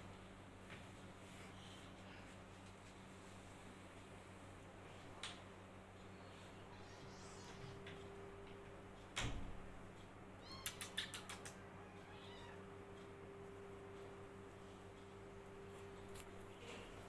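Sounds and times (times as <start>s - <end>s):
kitten crying: 10.4s - 11.0s, 11.8s - 12.6s
sharp clicks of claws: 10.5s - 11.6s.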